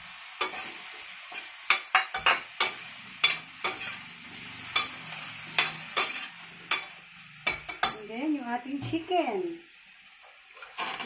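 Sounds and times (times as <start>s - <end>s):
potatoes sizzling in a pan: 0.0s - 11.0s
metal utensil scraping a pan: 0.4s - 8.1s.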